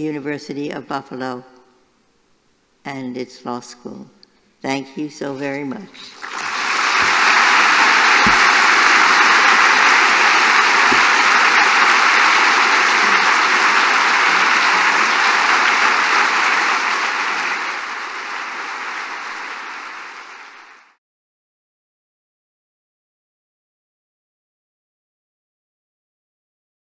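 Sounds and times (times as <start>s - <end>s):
audience applauding: 6.1s - 21.0s.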